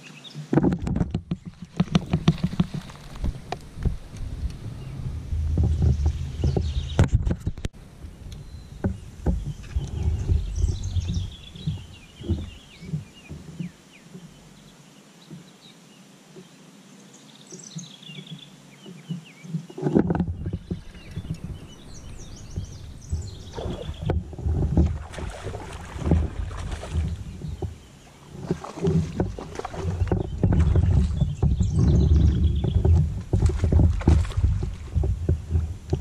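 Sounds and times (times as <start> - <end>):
songbirds singing: 0.0 - 36.0
water around kayak: 0.0 - 36.0
gusty wind rumble: 1.8 - 13.4, 20.0 - 36.0.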